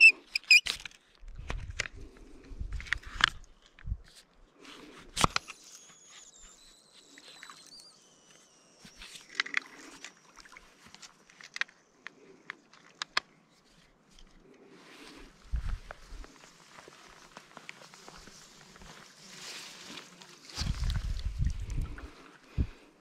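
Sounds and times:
faint high wavering whistle: 0.0 - 0.6, 5.5 - 11.1
small clicks and knocks: 10.9 - 13.3.

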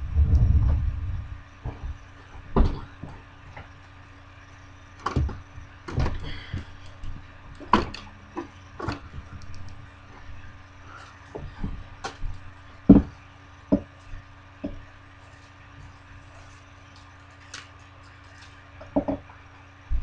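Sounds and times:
low rumble: 0.0 - 2.7
handling knocks and clicks: 5.0 - 14.9.

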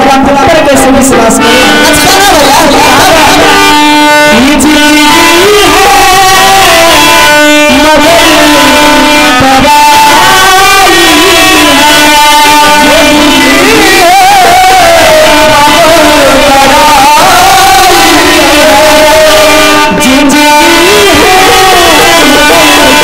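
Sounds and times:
dholak drum: 0.0 - 23.0
person singing over loudspeakers: 0.0 - 23.0.

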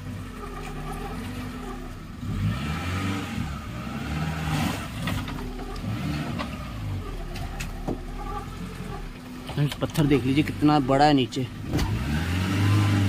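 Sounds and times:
engine revving under load: 0.0 - 13.0.

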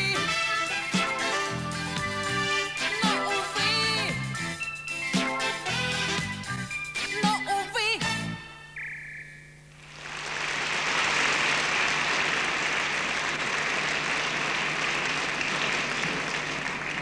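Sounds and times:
audience applauding: 9.8 - 17.0.

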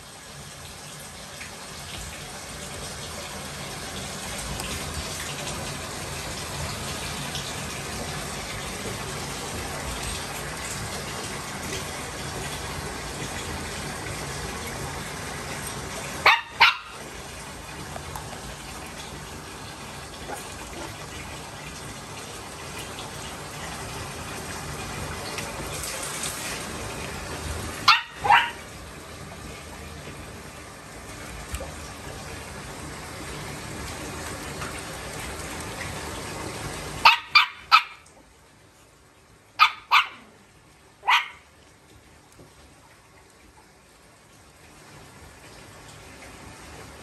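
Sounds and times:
running water from tap: 0.0 - 47.0
puppies barking: 16.2 - 17.0, 27.8 - 28.6, 37.0 - 38.1, 39.6 - 40.3, 41.0 - 41.4.

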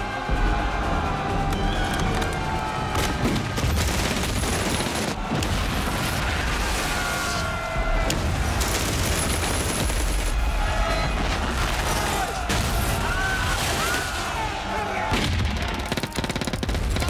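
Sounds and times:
film soundtrack music: 0.0 - 17.0
gunshots: 2.9 - 6.9, 8.0 - 17.0.

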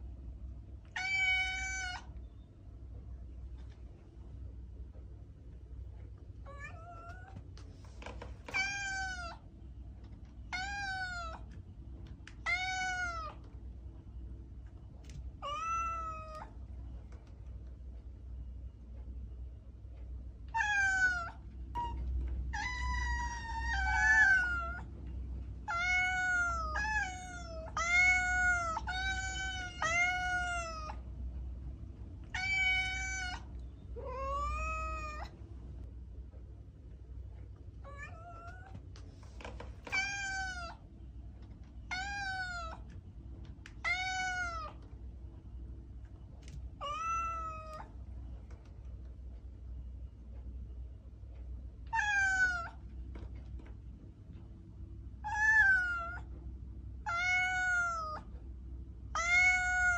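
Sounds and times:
cat meowing: 0.9 - 2.1, 6.4 - 7.4, 8.5 - 9.4, 10.5 - 11.5, 12.3 - 13.4, 15.4 - 16.6, 20.5 - 24.9, 25.6 - 31.0, 32.3 - 35.4, 37.8 - 38.8, 39.8 - 40.8, 41.9 - 42.9, 43.8 - 44.8, 46.8 - 47.9, 51.9 - 52.8, 55.2 - 56.3, 57.0 - 58.3, 59.1 - 59.9.

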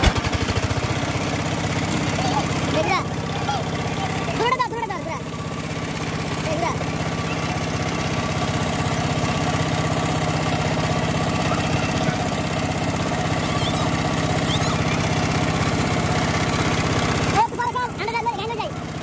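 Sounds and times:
diesel engine running: 0.0 - 19.0.

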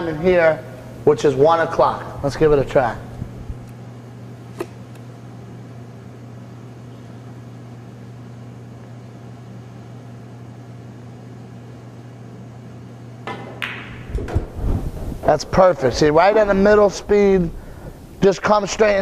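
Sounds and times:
low electrical hum: 0.0 - 19.0
cue striking ball click: 13.3 - 14.5.

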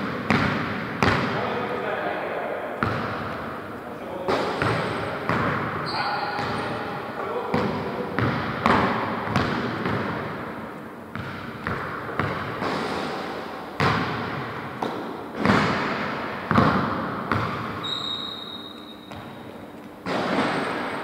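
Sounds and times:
basketball bouncing on wooden floor: 0.2 - 1.3, 2.8 - 3.4, 4.4 - 5.7, 6.4 - 6.8, 7.5 - 10.4, 11.1 - 12.8, 13.8 - 18.3, 19.1 - 19.4.

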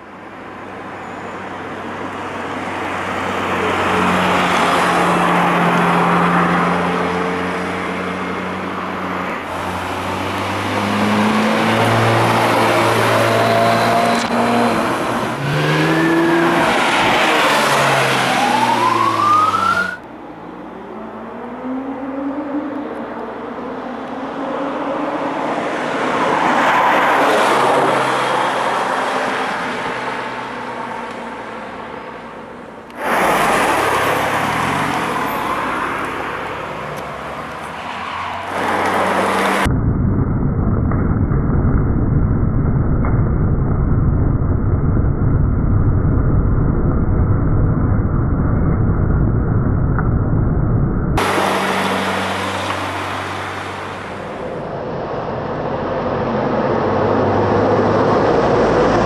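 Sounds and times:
sports cars accelerating past: 3.2 - 19.9, 51.2 - 59.0.

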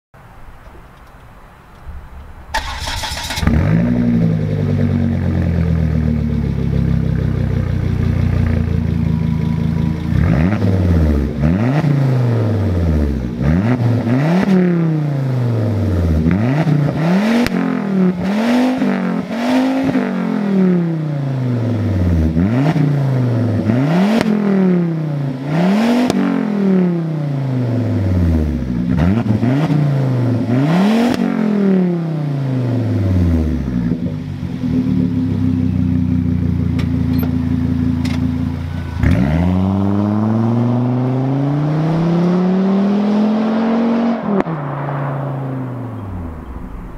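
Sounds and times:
car engine idling: 0.6 - 13.4, 32.8 - 40.4
engine revving in blips: 2.6 - 34.0, 38.0 - 46.9.

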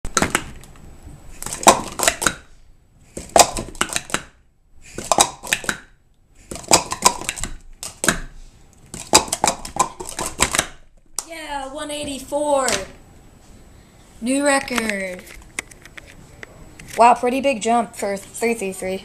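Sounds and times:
plastic cups clacking: 3.2 - 5.9, 6.5 - 8.2, 8.9 - 10.8.

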